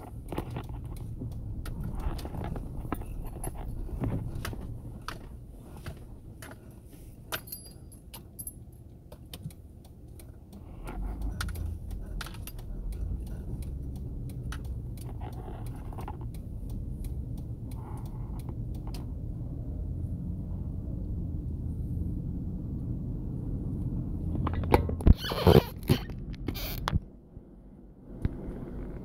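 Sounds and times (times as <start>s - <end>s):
sharp clicks and light rattles: 0.0s - 19.8s
vehicle engine and road rumble: 0.0s - 29.0s.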